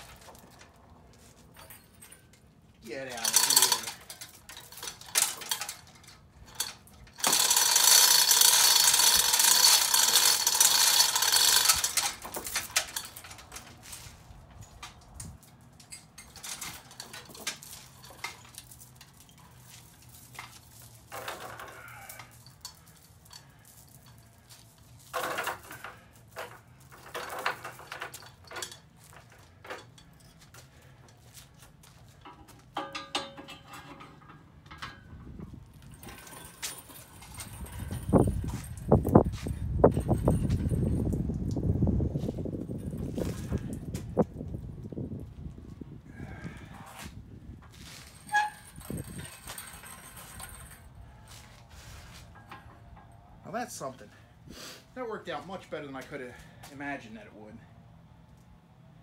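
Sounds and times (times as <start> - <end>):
chain hoist rattling and clicking: 0.0 - 47.0, 47.7 - 54.2.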